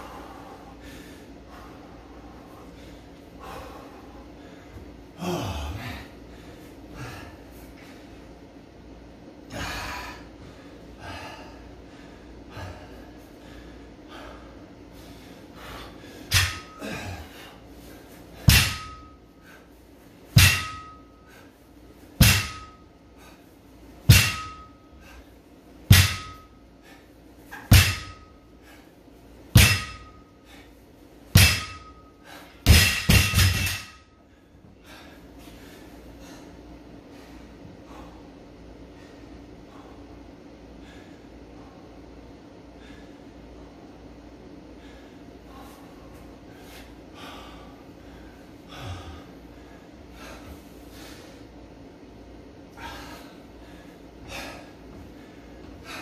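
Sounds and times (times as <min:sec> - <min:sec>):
man breathing heavily: 0:00.0 - 0:56.0
barbell thudding on rubber floor: 0:16.3 - 0:16.8, 0:18.4 - 0:19.2, 0:20.4 - 0:21.0, 0:22.2 - 0:22.8, 0:24.1 - 0:24.7, 0:25.9 - 0:26.5, 0:27.5 - 0:28.3, 0:29.6 - 0:30.2, 0:31.4 - 0:32.0, 0:32.6 - 0:34.0.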